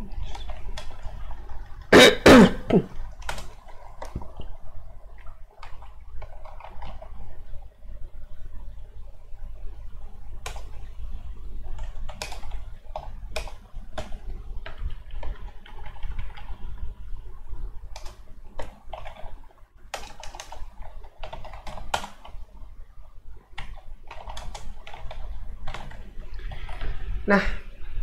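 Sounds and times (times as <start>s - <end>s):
typing on a keyboard: 0.2s - 1.6s, 3.1s - 4.5s, 5.5s - 7.2s, 10.4s - 10.7s, 11.7s - 16.6s, 17.9s - 22.4s, 23.6s - 26.9s.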